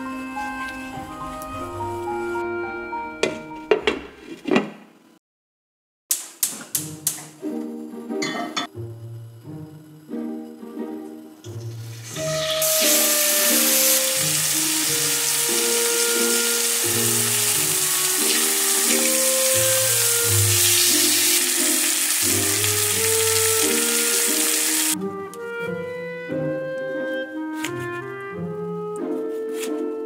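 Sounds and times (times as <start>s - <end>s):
background music: 0.0s - 4.2s, 6.7s - 30.0s
chicken sizzling in hot oil: 11.6s - 25.0s.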